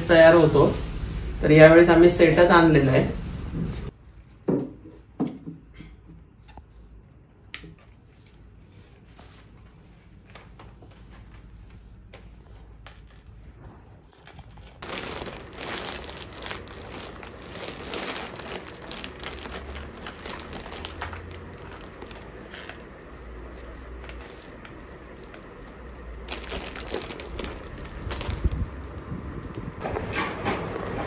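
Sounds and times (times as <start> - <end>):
plastic rustling and crinkling: 7.8 - 29.8.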